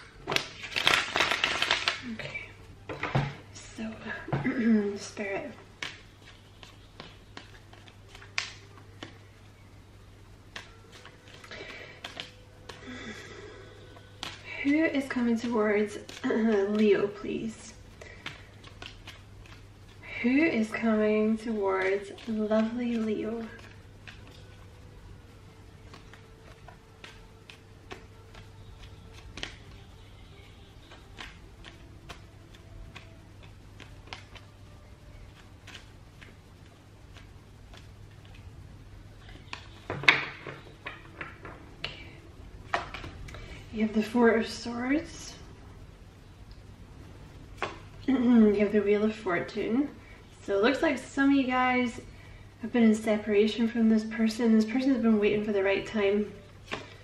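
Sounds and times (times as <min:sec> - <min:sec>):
faint electrical hum: 0:00.0 - 0:57.0
cards being shuffled: 0:00.2 - 0:02.4, 0:05.6 - 0:09.3, 0:10.4 - 0:13.2, 0:13.9 - 0:16.9, 0:17.9 - 0:24.7, 0:25.4 - 0:30.0, 0:30.8 - 0:38.5, 0:39.1 - 0:42.0, 0:42.7 - 0:43.5.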